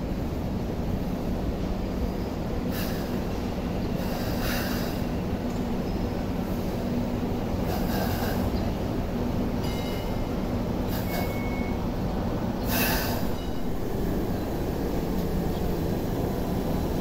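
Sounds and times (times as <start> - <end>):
wheels rumbling on rails: 0.0 - 17.0
short high hissing: 12.6 - 15.1
steady hum: 13.1 - 17.0.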